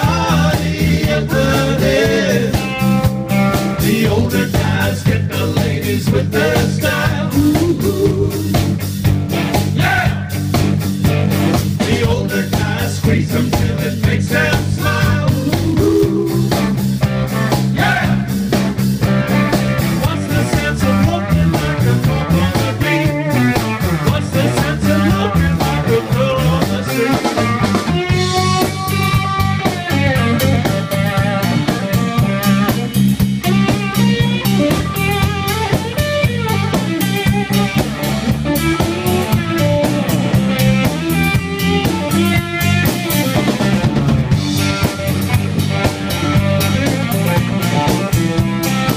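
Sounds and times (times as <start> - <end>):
live band playing: 0.0 - 48.9
electric guitar bent notes: 14.4 - 48.9.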